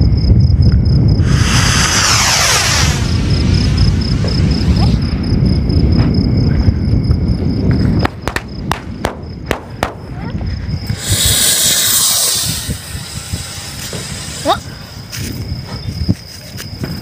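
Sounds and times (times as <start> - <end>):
crickets chirping: 0.0 - 17.0
fizzing hiss of pyrotechnics: 1.2 - 5.4, 10.8 - 16.1
loud low rushing noise: 1.2 - 6.4, 10.9 - 15.3
firecracker bangs: 8.0 - 10.2, 10.9 - 14.7.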